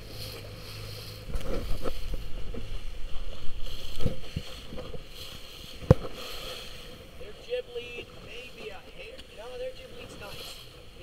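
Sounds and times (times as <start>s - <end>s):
wind buffeting microphone: 0.0s - 6.2s
water splashing around boat: 0.0s - 11.0s.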